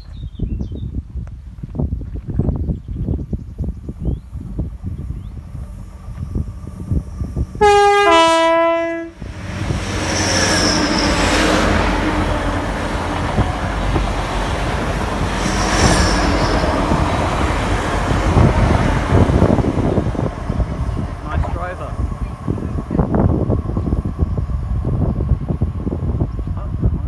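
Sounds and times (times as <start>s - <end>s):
train passing at speed: 3.8s - 27.0s
two-tone train horn: 7.5s - 9.6s.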